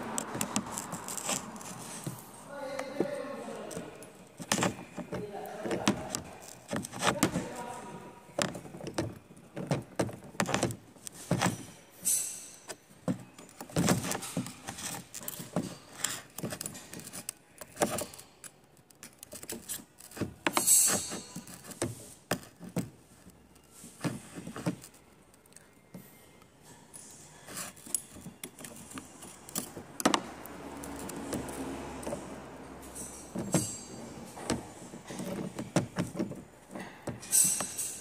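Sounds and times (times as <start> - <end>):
steel parts clinking: 11.4 - 21.8, 30.8 - 38.0
scraping rattles: 27.4 - 38.0.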